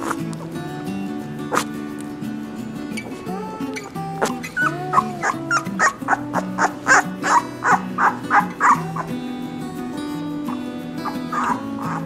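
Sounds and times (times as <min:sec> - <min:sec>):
background music: 0:00.0 - 0:12.0
puppy yipping: 0:04.2 - 0:09.1, 0:11.0 - 0:12.0.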